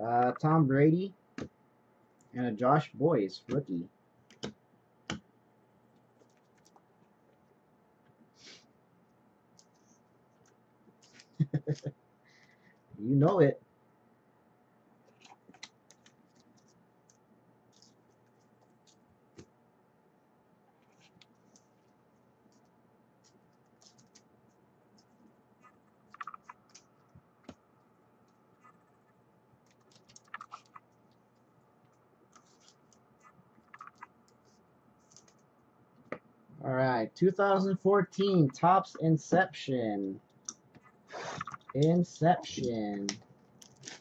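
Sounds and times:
cards and plastic holders handled: 33.7 - 35.5.

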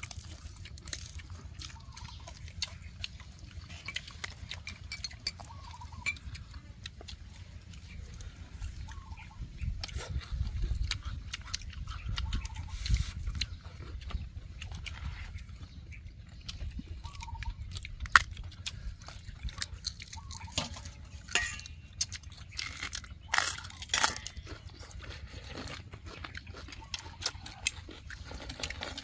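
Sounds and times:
people chewing and slurping: 0.0 - 29.0
wind rumble on microphone: 7.9 - 19.8.

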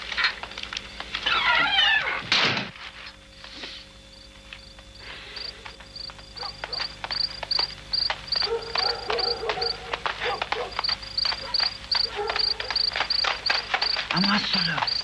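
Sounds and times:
crickets chirping: 3.2 - 15.0
hurried footsteps: 5.4 - 15.0.

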